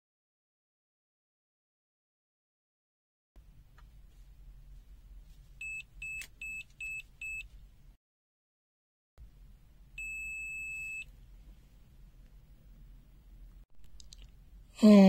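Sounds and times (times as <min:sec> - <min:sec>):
multimeter buzzer beeps: 0:05.6 - 0:07.5, 0:10.0 - 0:11.1.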